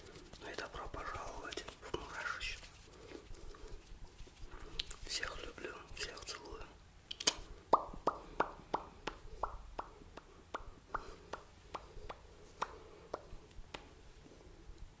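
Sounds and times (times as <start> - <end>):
wet mouth pops and clicks: 7.1 - 13.9.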